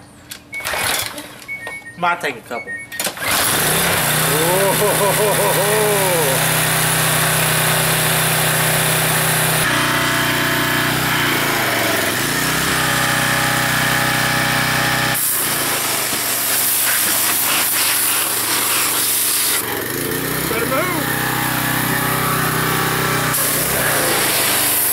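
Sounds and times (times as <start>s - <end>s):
pressure washer engine running: 3.2s - 24.9s
high-pressure water spray hissing: 4.2s - 9.6s, 15.0s - 19.6s, 23.3s - 24.9s.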